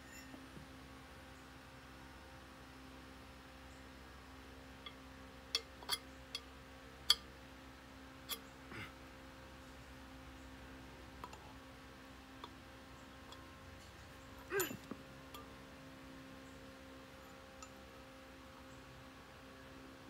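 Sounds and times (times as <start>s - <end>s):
faint steady hum: 0.0s - 20.0s.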